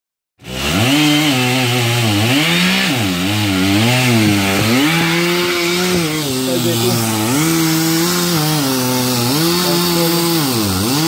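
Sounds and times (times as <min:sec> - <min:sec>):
chainsaw cutting: 0:00.4 - 0:11.0.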